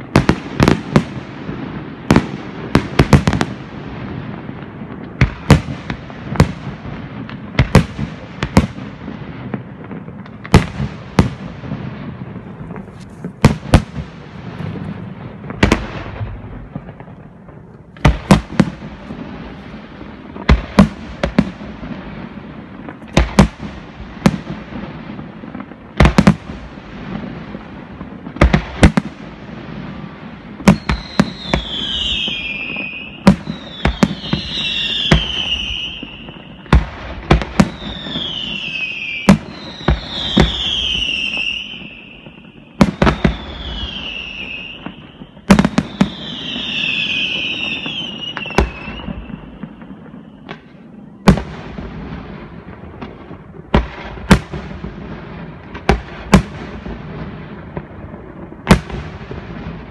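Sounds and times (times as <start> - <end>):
falling firework whistles: 30.6 - 50.7.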